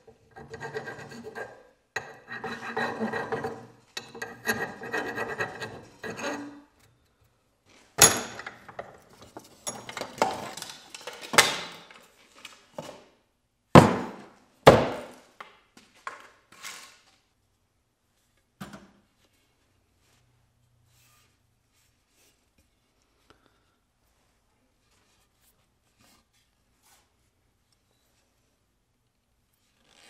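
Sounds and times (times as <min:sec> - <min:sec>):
hand file rasping on metal: 0:00.3 - 0:06.7
wooden knocks and thuds: 0:13.8 - 0:15.1.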